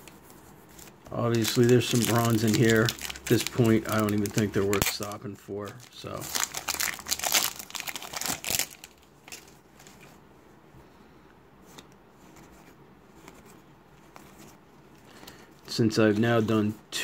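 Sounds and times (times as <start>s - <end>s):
cards rustling: 0.0s - 10.2s, 11.6s - 16.4s
foil wrapper crinkling: 1.1s - 9.9s.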